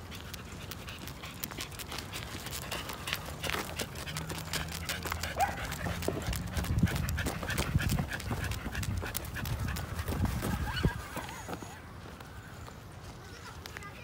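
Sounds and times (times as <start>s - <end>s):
dog panting: 0.0s - 11.6s
dog claws ticking on asphalt: 0.0s - 12.8s
footsteps on pavement: 0.0s - 14.0s.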